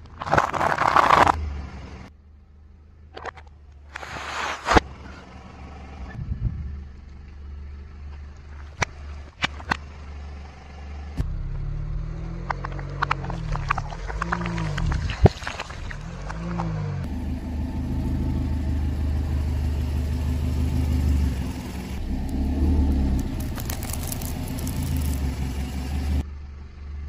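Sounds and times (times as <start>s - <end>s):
car engine hum: 1.1s - 27.0s
tyre crushing dry pasta: 22.0s - 25.9s.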